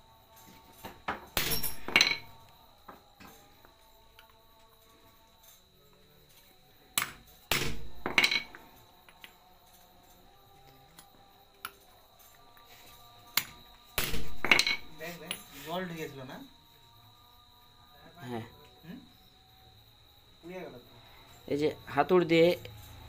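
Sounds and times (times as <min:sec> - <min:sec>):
hammer striking metal: 0:01.4 - 0:02.4, 0:13.4 - 0:15.4.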